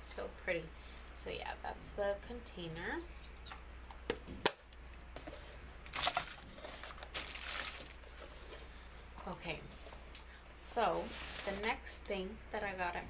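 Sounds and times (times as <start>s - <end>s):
packaging rustling and crinkling: 5.2s - 8.7s, 11.0s - 11.8s.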